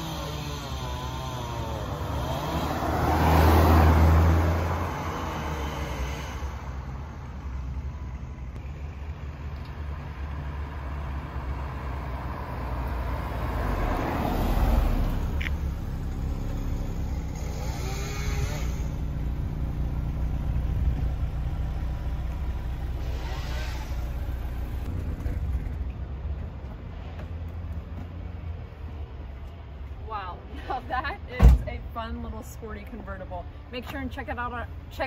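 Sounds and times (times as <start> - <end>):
car engine driving past: 2.2 - 6.9, 10.5 - 21.2.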